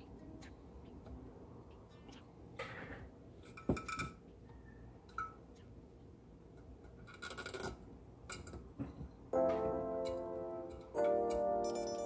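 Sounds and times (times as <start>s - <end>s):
small metallic clicks and knocks: 6.5s - 9.2s.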